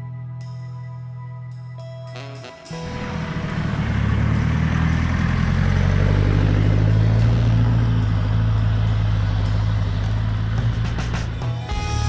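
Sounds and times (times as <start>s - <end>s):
engine pulling under load: 2.8s - 11.6s.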